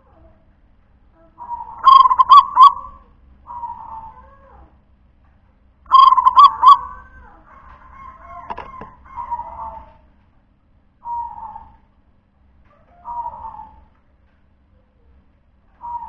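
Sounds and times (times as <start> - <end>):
dove cooing: 1.3 - 4.4, 5.9 - 10.2, 11.0 - 11.8, 12.6 - 14.0, 15.8 - 16.0.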